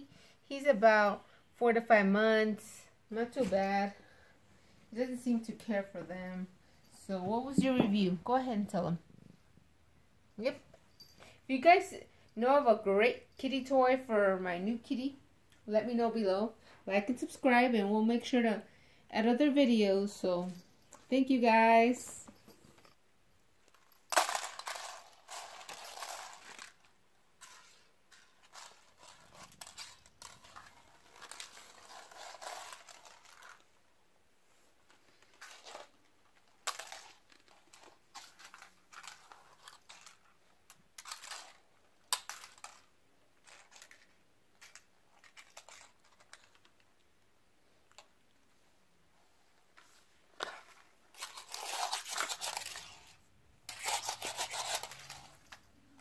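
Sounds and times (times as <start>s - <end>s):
rustling: 23.6s - 56.0s
plastic toys clattering on wooden floor: 23.7s - 33.6s, 36.6s - 40.3s, 41.0s - 46.8s.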